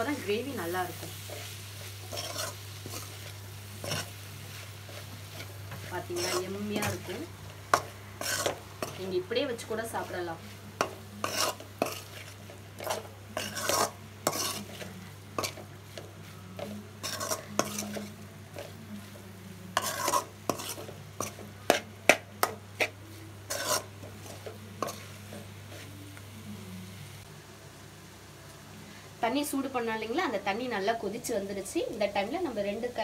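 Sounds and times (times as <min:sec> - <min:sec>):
light sizzle of frying: 0:00.0 - 0:33.0
metal spoon scraping pan: 0:00.9 - 0:09.1, 0:10.8 - 0:18.8, 0:19.7 - 0:25.9.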